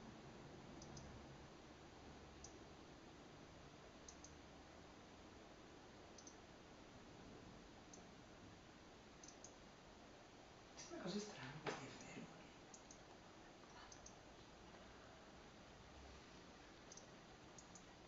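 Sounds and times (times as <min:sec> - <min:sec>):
bird tic calls: 0:06.2 - 0:06.4.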